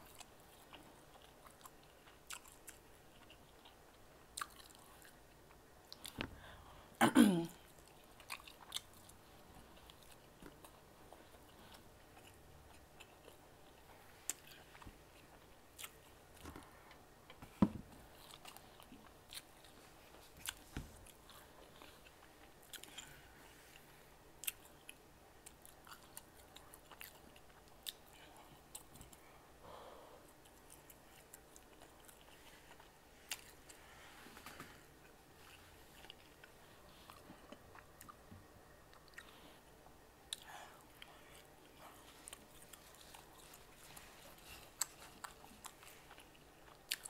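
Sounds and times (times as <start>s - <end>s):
person chewing and swallowing: 7.6s - 23.8s, 24.4s - 29.2s, 35.0s - 39.5s, 40.3s - 47.0s.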